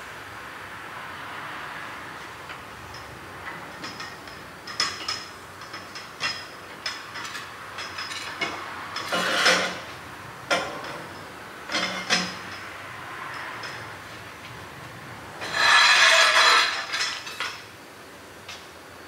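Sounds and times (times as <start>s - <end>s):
hand tools clinking on metal: 2.5s - 13.9s, 15.4s - 17.7s.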